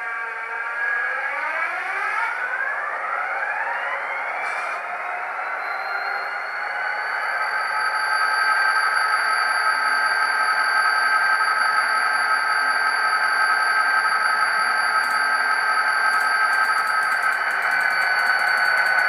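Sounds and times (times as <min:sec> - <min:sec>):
model locomotive diesel idling: 0:11.8 - 0:19.0.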